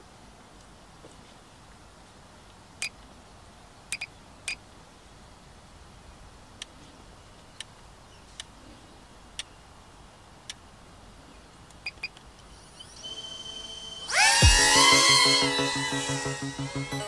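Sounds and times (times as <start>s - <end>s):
faint sharp clicks: 0.5s - 1.2s, 6.6s - 8.6s, 10.4s - 10.7s, 11.5s - 12.5s
high thin tones: 12.5s - 17.0s.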